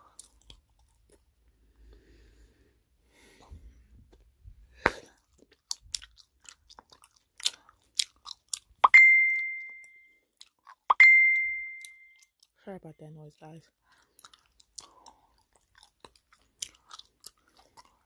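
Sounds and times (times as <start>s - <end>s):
gum chewing mouth clicks: 0.0s - 1.3s, 4.9s - 8.9s, 13.9s - 18.0s
bell-like ding: 8.9s - 10.1s, 11.0s - 12.2s.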